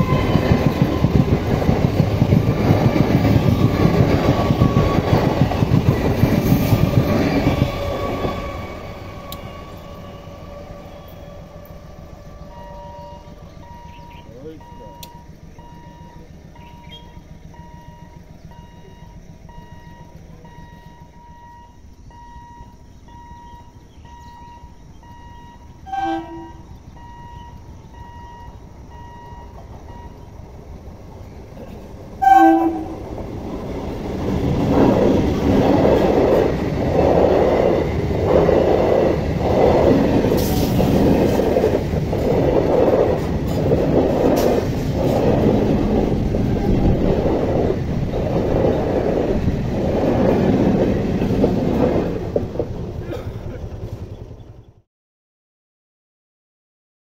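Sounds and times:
train horn blasts: 0.0s - 1.1s, 7.4s - 14.1s, 25.2s - 27.5s, 32.2s - 33.1s
train rumbling past: 0.0s - 54.8s
wheel clatter over rail joints: 29.5s - 54.7s.

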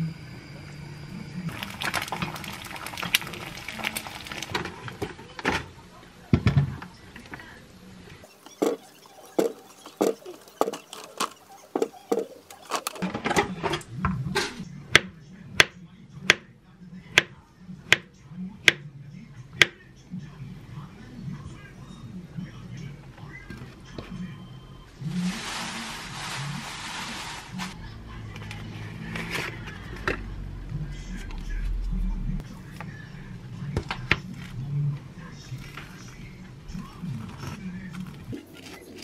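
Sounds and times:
egg sizzling in a pan: 1.5s - 4.8s.

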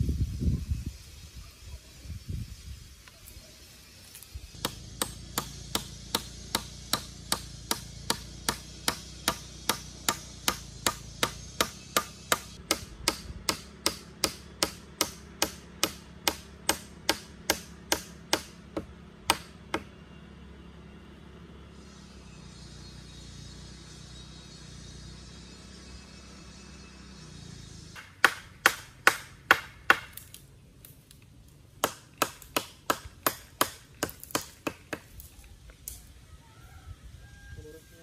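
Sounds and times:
hammer striking wood: 4.6s - 19.9s, 28.0s - 30.2s, 31.8s - 35.1s.

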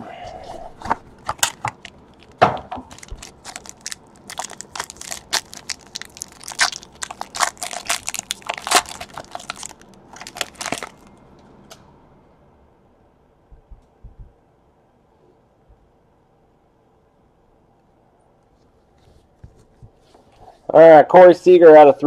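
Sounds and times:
foil wrapper crinkling and tearing: 1.2s - 11.1s.

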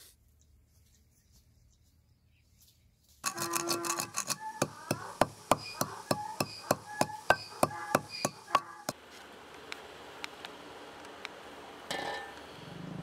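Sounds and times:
ringing metallic strikes: 4.3s - 8.9s.

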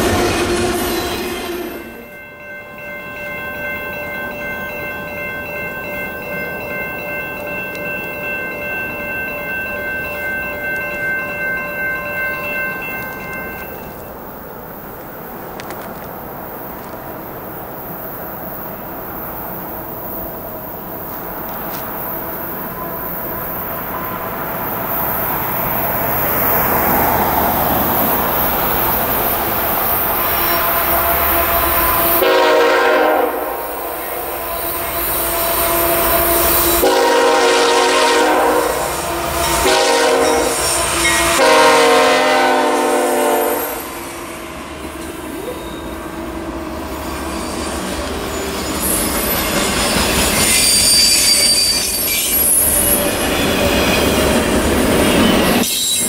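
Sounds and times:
freight train rumble: 0.0s - 56.0s
train cars rolling past: 0.0s - 56.0s
locomotive horn blasts: 30.1s - 43.9s.

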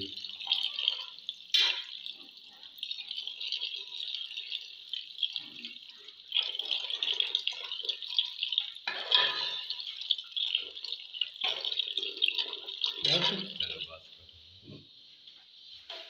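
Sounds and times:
ladle stirring wet curry: 0.2s - 13.8s
ladle clinking against pot: 8.9s - 9.8s.

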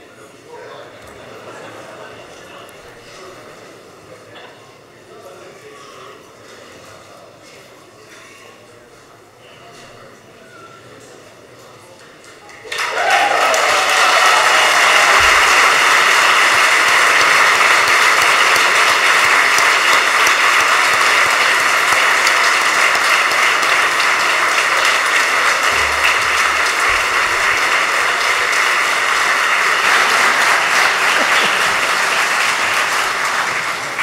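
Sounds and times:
crowd applauding: 12.5s - 34.0s.

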